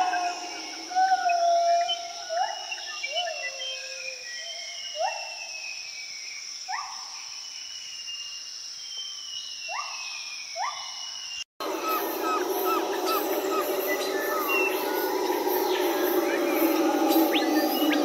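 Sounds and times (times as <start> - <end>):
rising animal calls: 0.0 - 4.2, 11.6 - 18.0
high insect drone: 0.0 - 18.0.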